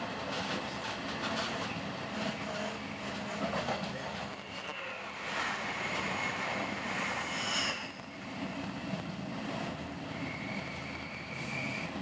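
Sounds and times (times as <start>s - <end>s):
train rumbling inside coach: 0.0s - 12.0s
thin high squeals: 10.2s - 12.0s.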